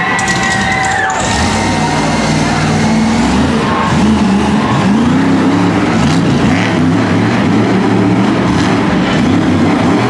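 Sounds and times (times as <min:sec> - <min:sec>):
truck engine revving loudly: 0:00.0 - 0:10.0.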